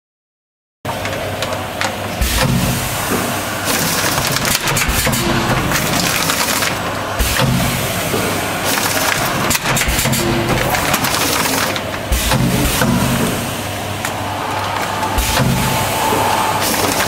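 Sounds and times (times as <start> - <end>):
packaging machine clatter and hiss: 2.0 - 13.6, 16.2 - 17.0
heavy machine thump: 2.2 - 3.4, 4.3 - 6.2, 6.8 - 8.4, 9.2 - 11.1, 12.0 - 17.0.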